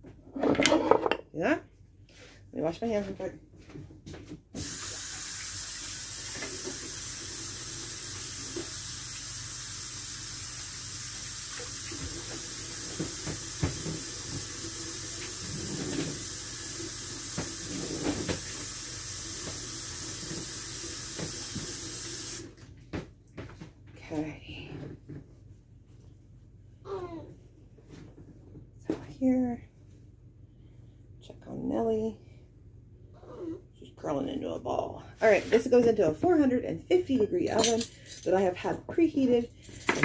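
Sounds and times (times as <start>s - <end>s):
tap water running: 4.6s - 22.6s.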